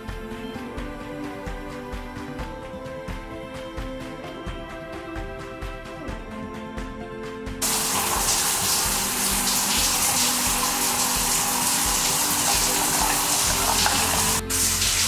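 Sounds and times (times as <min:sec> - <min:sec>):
faucet water splashing into sink: 0:07.6 - 0:15.0.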